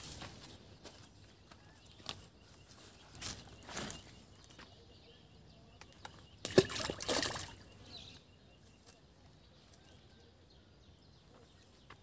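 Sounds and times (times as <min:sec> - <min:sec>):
water splashing in a pond: 0:06.0 - 0:07.8
loud plop and splash: 0:06.4 - 0:07.6.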